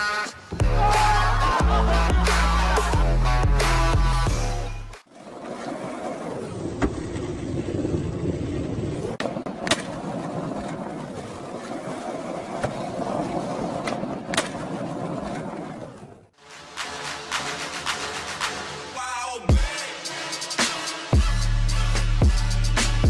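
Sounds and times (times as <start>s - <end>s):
skateboard wheels rolling on asphalt: 5.0s - 18.7s.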